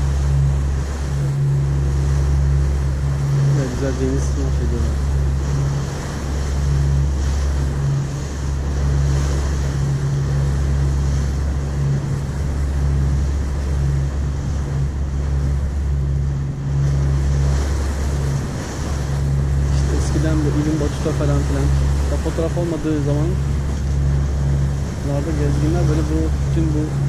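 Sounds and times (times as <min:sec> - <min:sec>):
ferry engines droning: 0:00.0 - 0:27.0
water rushing along hull: 0:00.0 - 0:27.0
wind on microphone: 0:00.0 - 0:27.0.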